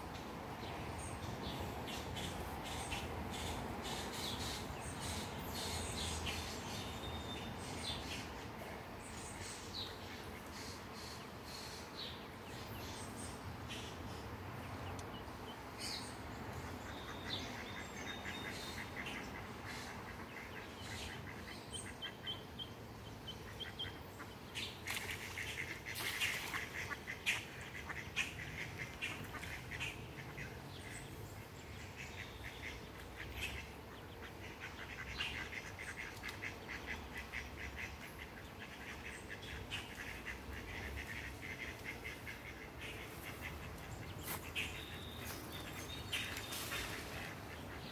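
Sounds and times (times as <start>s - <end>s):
ducks calling: 16.7s - 47.9s
duck splashing and wing-flapping: 24.8s - 28.0s, 46.2s - 47.6s.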